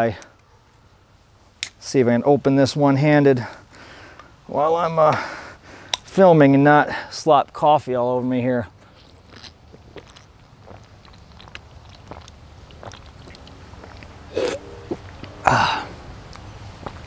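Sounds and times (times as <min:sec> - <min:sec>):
person gulping: 0:09.4 - 0:16.0
breathy exhale: 0:15.4 - 0:16.1.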